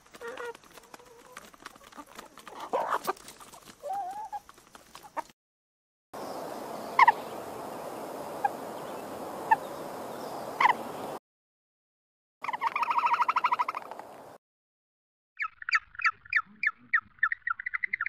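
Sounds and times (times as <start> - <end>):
chickens clucking: 0.0 - 5.3, 12.4 - 14.1
high bird calls: 6.2 - 11.2, 12.4 - 14.0, 15.4 - 18.0.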